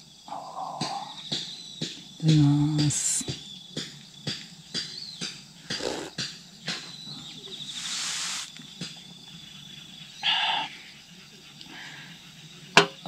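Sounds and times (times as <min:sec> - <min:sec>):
insects trilling: 0:00.0 - 0:13.0
short hiss: 0:07.7 - 0:08.6.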